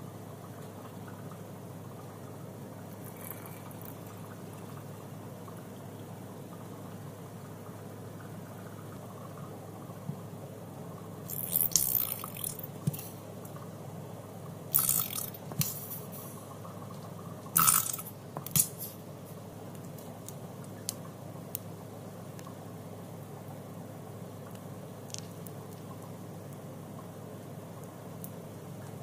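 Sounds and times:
steady low hum: 0.0s - 29.0s
liquid squirting: 3.0s - 4.2s, 11.3s - 12.7s, 14.7s - 15.9s, 17.6s - 19.0s
plastic bottles squeezed: 11.3s - 13.0s, 17.6s - 18.9s.

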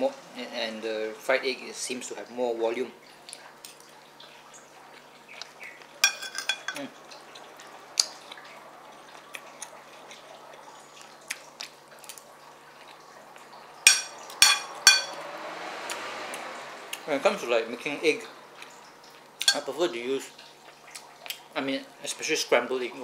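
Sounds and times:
spoon scraping ceramic plate: 6.0s - 6.8s, 13.9s - 15.2s.

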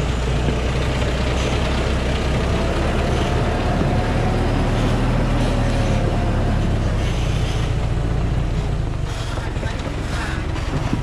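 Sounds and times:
truck diesel engine rumbling: 0.0s - 11.0s.

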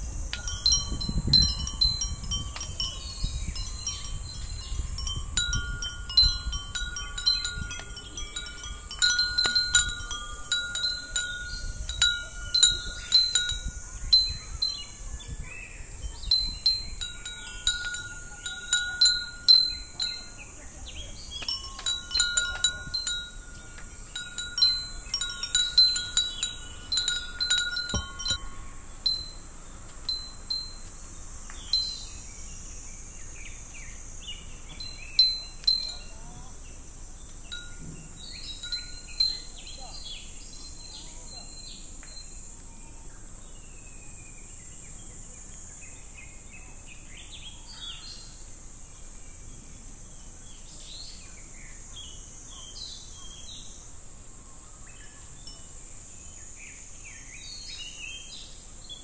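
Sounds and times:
cicadas droning: 0.0s - 59.0s
glass wind chimes tinkling: 0.1s - 32.2s, 34.3s - 36.7s, 37.4s - 42.6s, 54.9s - 56.6s.

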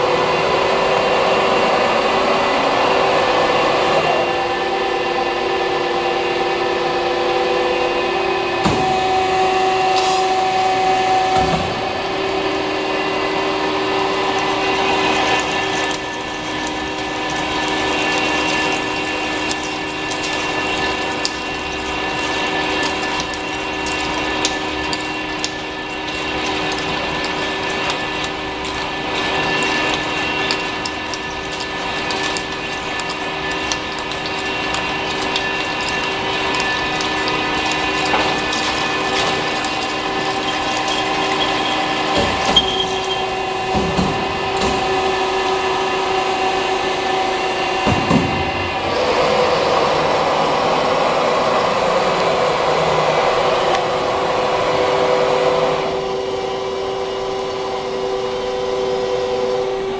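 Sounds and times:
drilling machine whine: 0.0s - 59.9s
drills cutting steel plate: 8.2s - 59.9s
crackle of breaking chips: 14.6s - 43.4s.

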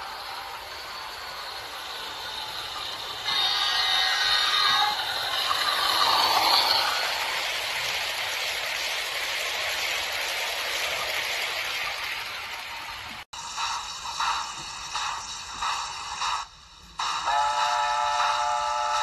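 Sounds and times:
model train wheels rattling on rails: 0.0s - 13.2s.

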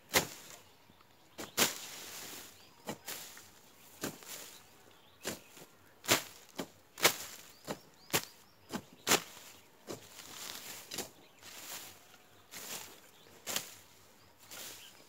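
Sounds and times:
hoe chopping into soil: 0.1s - 0.6s, 1.4s - 4.6s, 5.2s - 11.8s, 12.5s - 13.8s.

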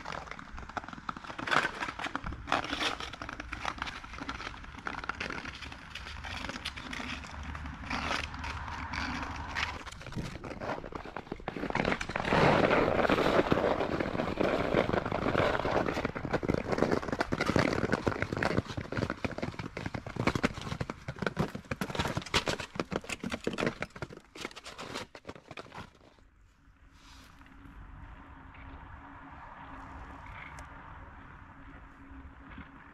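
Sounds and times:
ice crackling and crunching: 0.0s - 26.2s.

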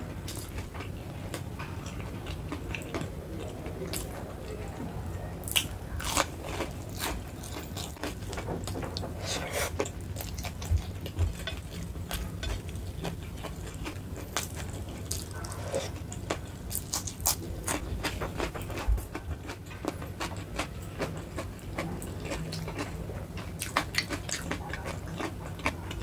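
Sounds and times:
crunchy chewing: 5.4s - 26.0s.

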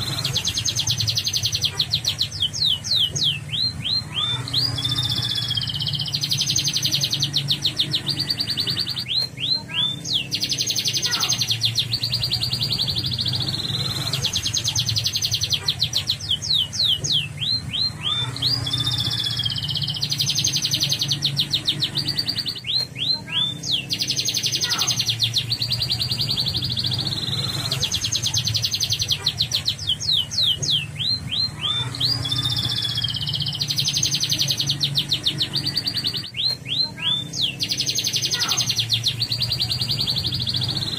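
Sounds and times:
canary singing trills: 0.0s - 40.9s
steady low hum: 0.0s - 40.9s.

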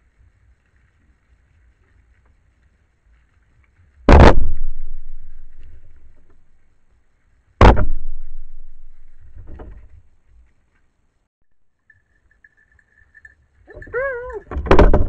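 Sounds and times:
gunshots echoing: 4.1s - 6.0s, 7.6s - 8.9s
faint bang: 4.1s - 6.4s, 7.6s - 10.0s.

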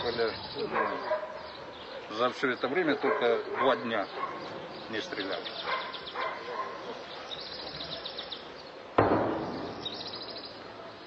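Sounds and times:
small birds trilling: 0.0s - 11.0s
sharp loud bang: 9.0s - 10.4s.

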